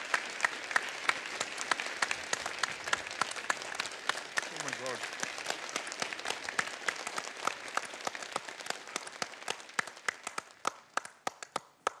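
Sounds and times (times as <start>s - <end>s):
people clapping: 0.0s - 12.0s.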